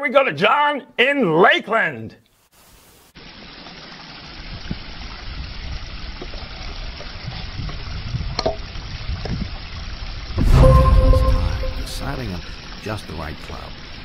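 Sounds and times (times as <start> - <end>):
outdoor hiss: 2.2 - 7.0, 12.1 - 14.0.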